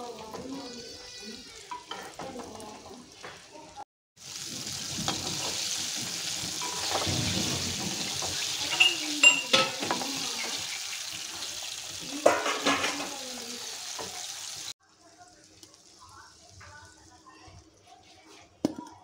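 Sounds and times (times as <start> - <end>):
chicken sizzling in hot oil: 0.0 - 18.3
metal spatula clinking on pan: 8.6 - 10.8.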